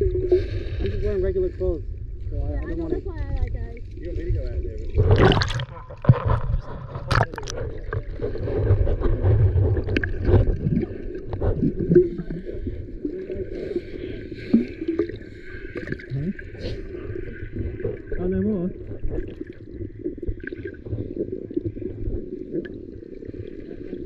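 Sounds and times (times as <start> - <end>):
underwater sloshing and gurgling: 0.0 - 24.0
water splash: 4.0 - 12.3
sharp underwater clicks: 5.1 - 8.0.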